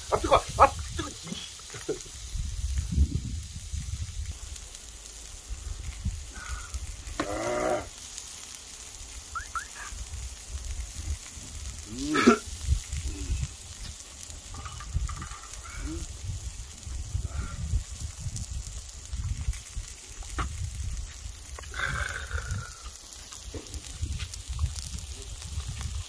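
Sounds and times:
men making wordless vocal sounds: 0:00.0 - 0:02.0, 0:11.8 - 0:12.5
faint sizzling on griddle: 0:00.0 - 0:26.0
steady low rumble: 0:10.0 - 0:26.0.

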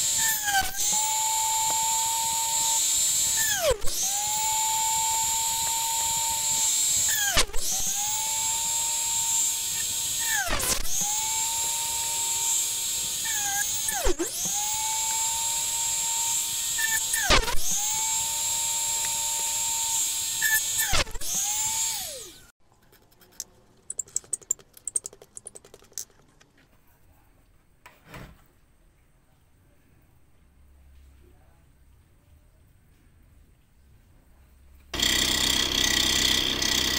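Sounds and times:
drill press whining: 0:00.0 - 0:22.5, 0:35.0 - 0:36.9.

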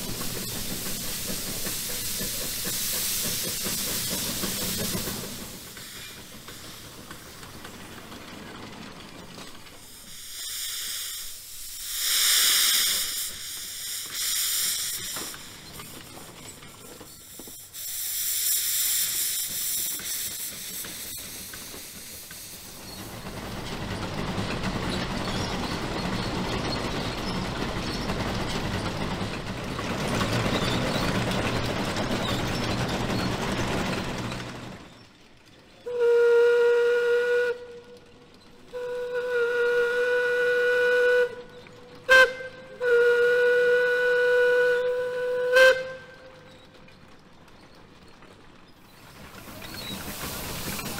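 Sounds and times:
steam hissing and rushing: 0:00.0 - 0:35.1, 0:47.6 - 0:50.9
steam whistle blasts: 0:35.9 - 0:38.0, 0:38.7 - 0:46.5.

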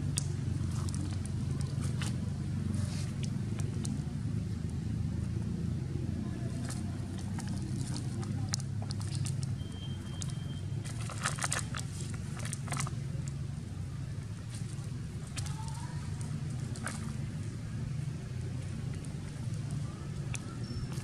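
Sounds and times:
dry leaves crackling and crunching: 0:10.2 - 0:13.0, 0:14.2 - 0:21.0.

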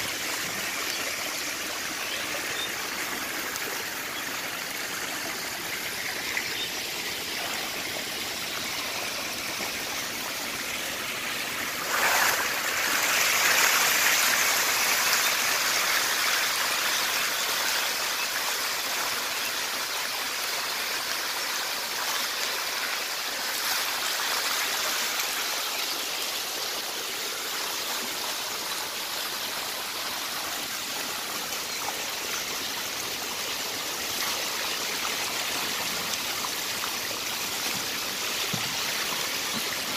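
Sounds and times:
fish splashing in water: 0:11.8 - 0:14.5.

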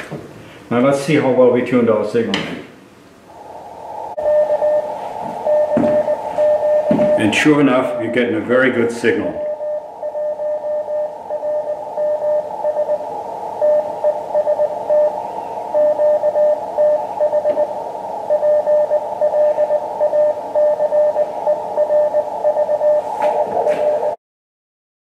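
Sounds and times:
radio band noise hiss: 0:00.0 - 0:24.2
morse code beeping tone: 0:04.2 - 0:08.5, 0:09.3 - 0:24.2.

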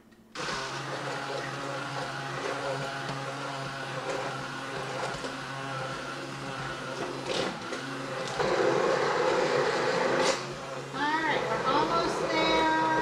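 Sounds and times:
immersion blender running: 0:00.4 - 0:13.0.

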